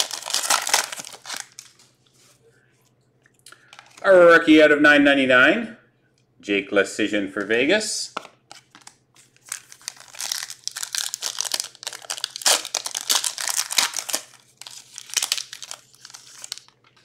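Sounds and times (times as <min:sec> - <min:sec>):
plastic packaging crinkling: 0:00.0 - 0:02.0, 0:08.5 - 0:17.0.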